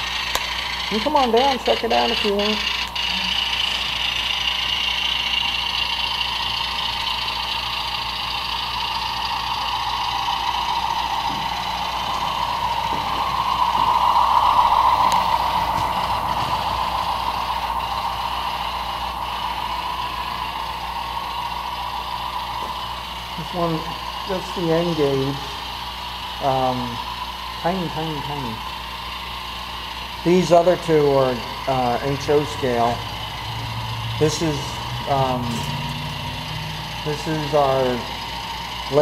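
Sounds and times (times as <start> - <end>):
model train whirring: 0.0 - 39.0.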